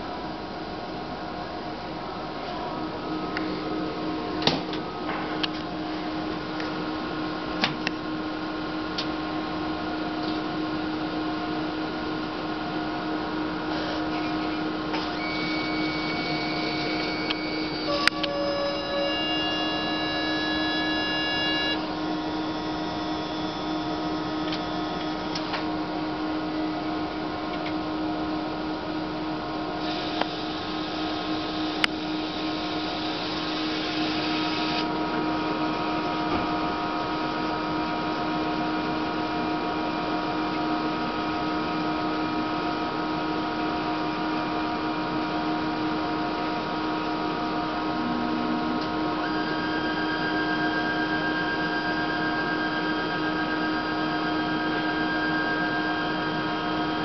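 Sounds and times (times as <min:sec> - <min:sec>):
machine hum of fans: 0:00.0 - 0:57.0
constant machine tones: 0:12.8 - 0:28.8, 0:46.2 - 0:57.0
hiss: 0:29.8 - 0:34.8.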